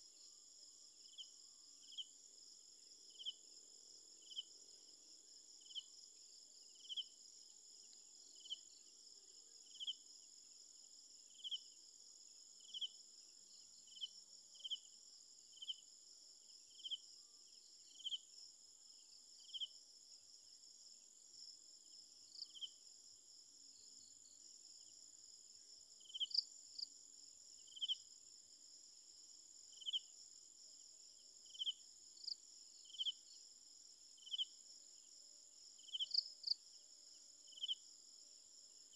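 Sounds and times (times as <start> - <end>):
insect high-pitched trill: 12.6 - 15.9, 25.9 - 27.0, 27.6 - 28.2, 29.6 - 30.2, 31.2 - 38.9.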